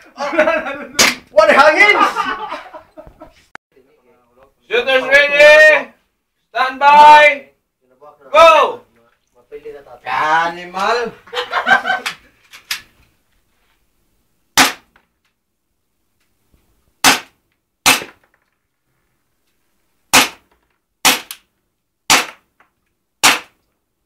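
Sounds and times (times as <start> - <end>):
airsoft pistol shots: 14.6 - 14.9, 17.0 - 18.2, 20.1 - 21.4, 22.1 - 22.4, 23.2 - 23.6.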